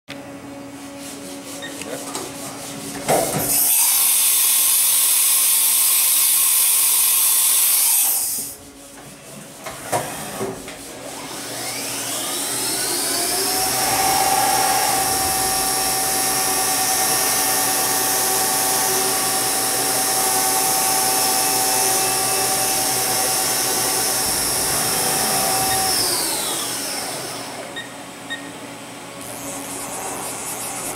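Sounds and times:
spindle whining: 12.1 - 27.9
loud hiss of air: 13.5 - 18.3.

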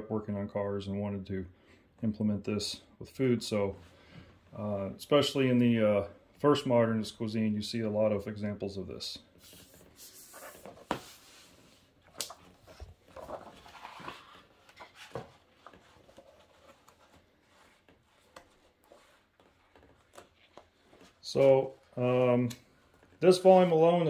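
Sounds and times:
book pages turning: 9.4 - 24.0.

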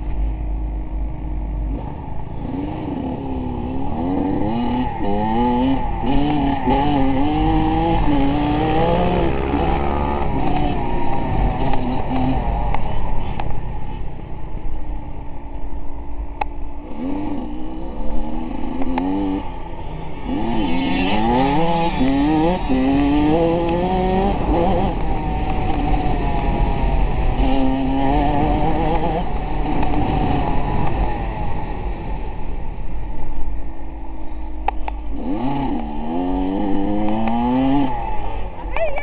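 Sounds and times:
steady low rumble: 0.0 - 4.6
vehicle engine revving: 1.2 - 14.2, 16.8 - 32.8, 34.2 - 39.0.

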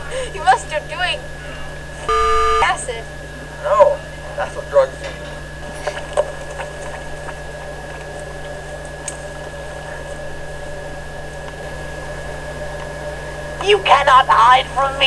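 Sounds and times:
low hum: 2.0 - 2.8
thin high whine: 2.0 - 3.0.

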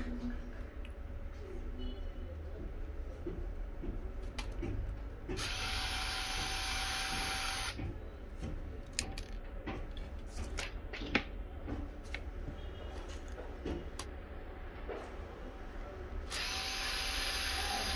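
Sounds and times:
electric screwdriver motor running: 5.4 - 7.8, 16.3 - 17.9
sharp clicks and taps: 7.7 - 12.3.

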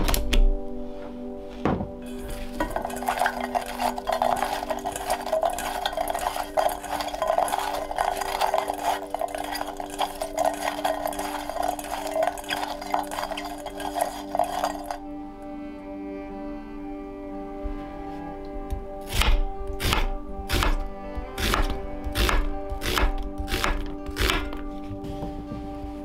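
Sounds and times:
vegetable pieces scraping metal bowl: 2.1 - 15.0.

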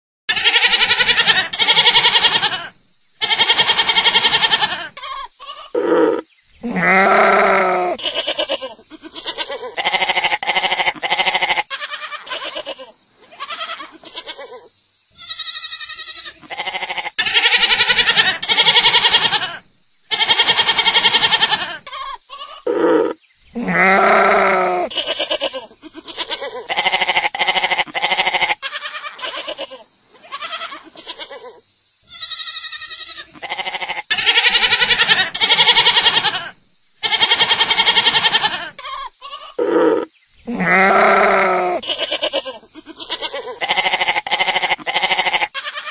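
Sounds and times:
goats bleating: 0.3 - 14.6, 15.2 - 45.9.

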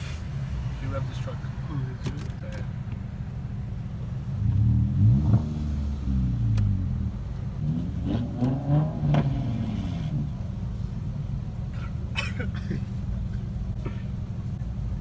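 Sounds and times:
idling traffic hum: 0.0 - 15.0
truck engine revving: 4.4 - 10.4.

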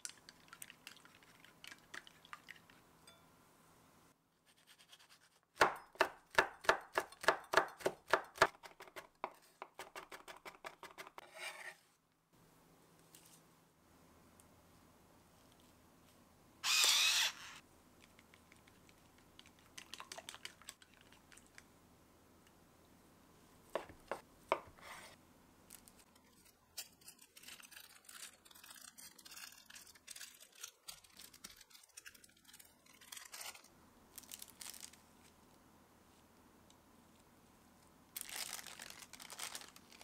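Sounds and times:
pepper grinder rasp: 16.6 - 17.6
plastic film crinkling and tearing: 27.1 - 35.0, 38.2 - 40.0.

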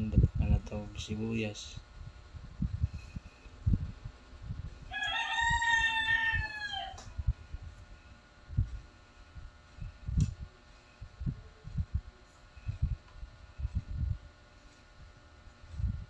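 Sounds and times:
rooster crowing: 4.8 - 7.2.

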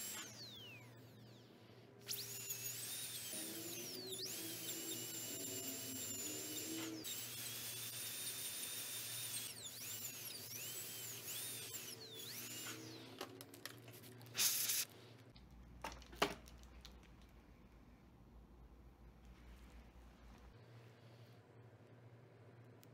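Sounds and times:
dental drill whining: 0.0 - 13.4, 14.4 - 14.9.

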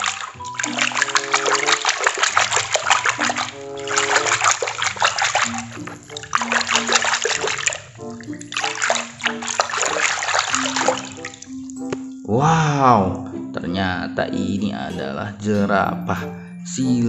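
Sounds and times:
water splashing in a basin: 0.0 - 12.2
background music: 0.0 - 17.0.

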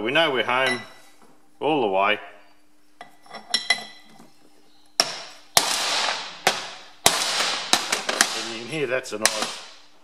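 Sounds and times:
steel ring clinking: 3.1 - 4.1.

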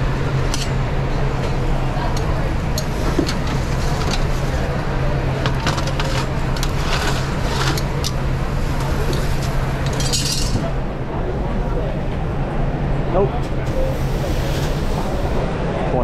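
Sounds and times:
low kitchen hum: 0.0 - 15.8
metal tongs clattering on grill: 8.8 - 10.7.

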